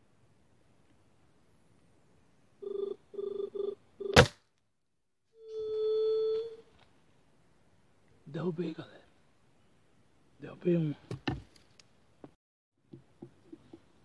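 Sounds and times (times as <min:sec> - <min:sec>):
short hooting tones: 0:05.4 - 0:06.7.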